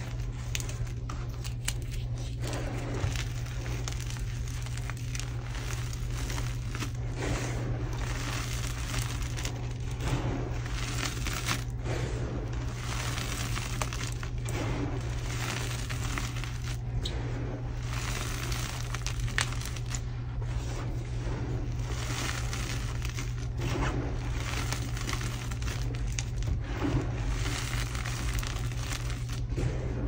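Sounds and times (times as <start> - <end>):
chalk crunching in hands: 0.0 - 16.9, 17.8 - 29.5.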